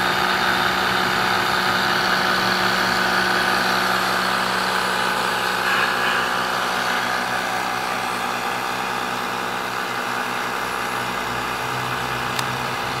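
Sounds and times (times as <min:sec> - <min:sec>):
motor hum: 0:00.0 - 0:13.0.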